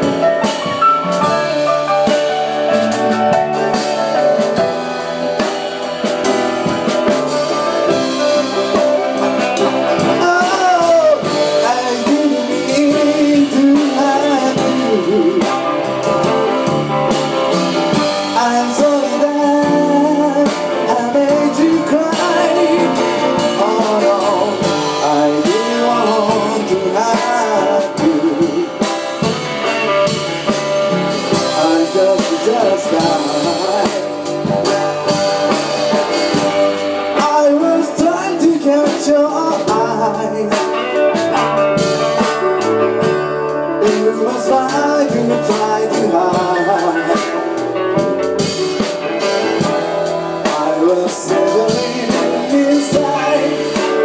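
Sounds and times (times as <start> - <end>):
live blues-rock band: 0.0 - 54.0
person singing: 7.0 - 16.8, 17.9 - 29.8, 30.9 - 41.7, 43.0 - 48.1, 50.1 - 54.0.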